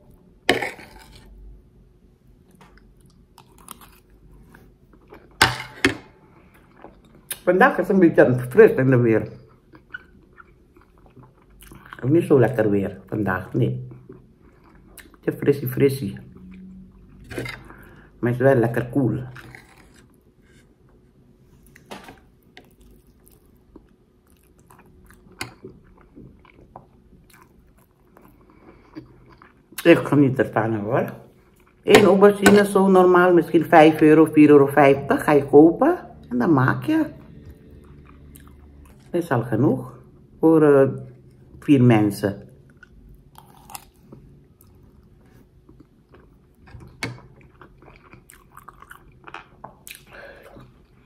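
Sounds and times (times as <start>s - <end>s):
person chewing food: 0.5s - 1.5s, 2.4s - 7.4s, 9.4s - 12.0s, 13.9s - 15.2s, 19.3s - 29.8s, 37.2s - 39.1s, 42.6s - 51.0s.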